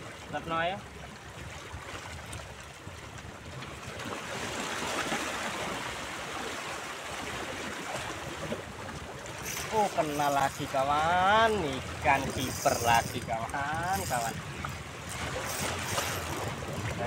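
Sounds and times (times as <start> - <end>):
waves splashing against rocks: 3.2 - 17.0.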